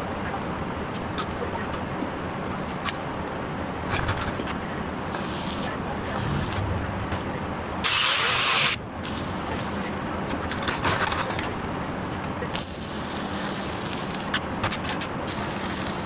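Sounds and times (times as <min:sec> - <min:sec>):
low electrical hum: 0:00.0 - 0:16.0
welding arc sputtering and crackling: 0:00.1 - 0:16.0.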